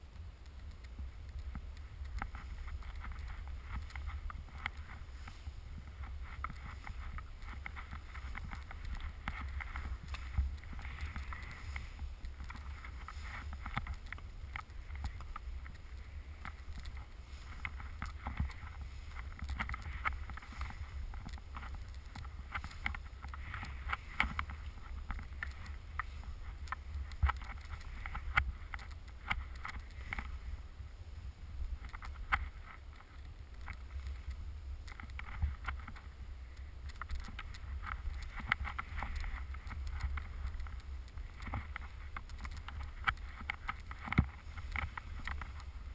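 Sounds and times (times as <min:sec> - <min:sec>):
wind rumble on microphone: 0:00.0 - 0:45.9
sharp clicks and knocks: 0:00.4 - 0:30.3, 0:36.8 - 0:45.9
skis hissing through snow: 0:03.4 - 0:08.4, 0:09.1 - 0:13.6.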